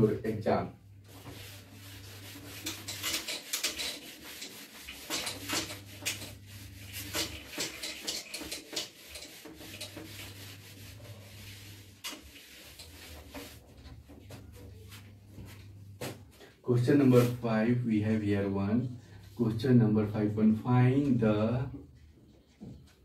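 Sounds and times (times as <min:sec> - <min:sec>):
eraser scrubbing whiteboard: 0:01.0 - 0:16.2.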